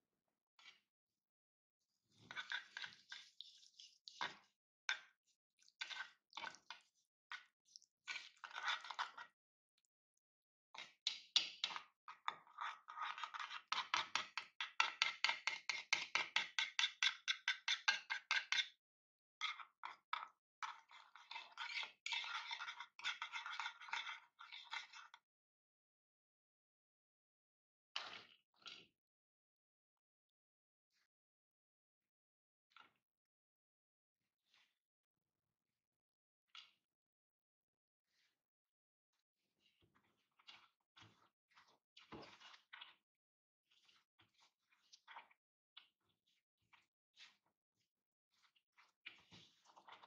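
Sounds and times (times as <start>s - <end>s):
whisk scraping in wooden bowl: 2.2s - 5.1s, 5.8s - 9.2s, 21.1s - 25.1s.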